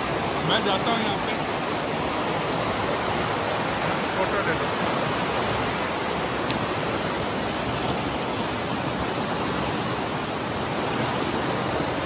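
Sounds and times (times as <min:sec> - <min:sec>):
water rushing over rocks: 0:00.0 - 0:12.0.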